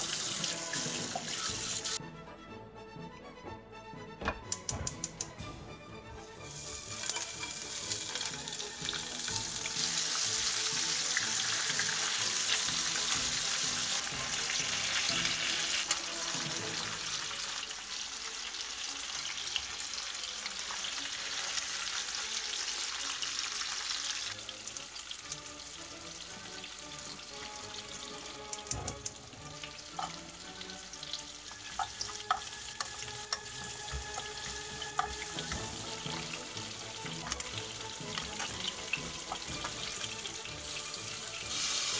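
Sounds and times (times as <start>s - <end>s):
fish sizzling in hot oil: 0.0s - 2.0s, 6.4s - 41.9s
utensils clicking against pan: 4.2s - 5.4s, 7.0s - 8.4s, 28.4s - 29.3s, 29.9s - 30.2s, 31.5s - 36.3s, 37.0s - 40.0s.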